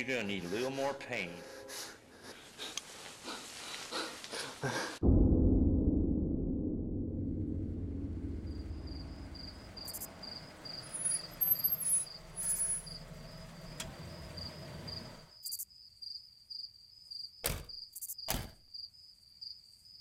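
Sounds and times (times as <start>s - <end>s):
low rumbling drone: 5.0s - 11.3s
crickets chirping: 7.9s - 20.0s.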